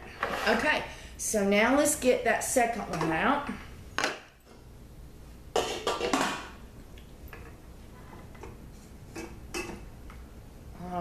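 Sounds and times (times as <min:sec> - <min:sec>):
metal pot lid clattering: 0:05.6 - 0:06.5.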